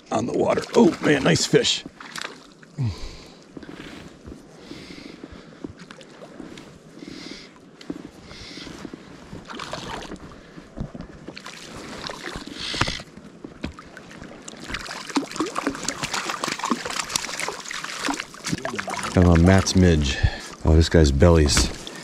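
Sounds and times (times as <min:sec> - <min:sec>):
water splashing: 0:00.0 - 0:03.4, 0:09.4 - 0:10.5, 0:11.3 - 0:22.0.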